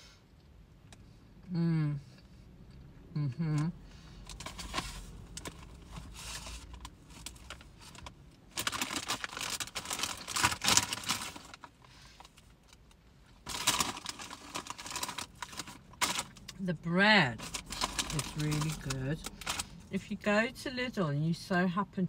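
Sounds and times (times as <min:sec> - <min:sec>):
crisp packet crinkling: 0:04.3 - 0:16.6, 0:17.3 - 0:19.9.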